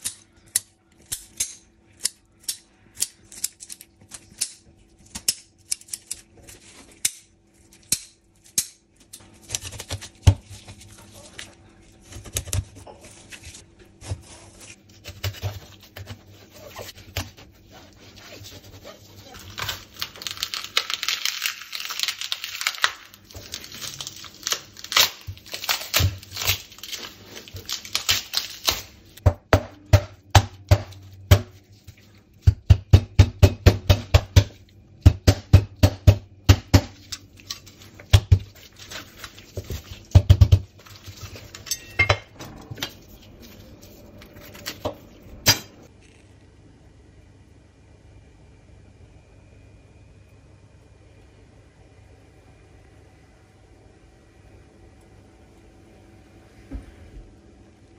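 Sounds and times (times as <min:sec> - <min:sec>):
tearing and rustling: 0:03.2 - 0:29.2, 0:37.0 - 0:40.1.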